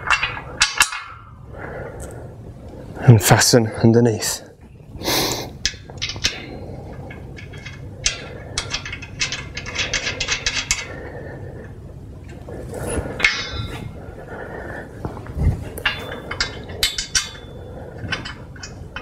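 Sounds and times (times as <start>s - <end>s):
metal clank: 0.0s - 1.3s, 12.3s - 14.0s, 15.5s - 19.0s
metal clicks and clinks: 15.8s - 19.0s.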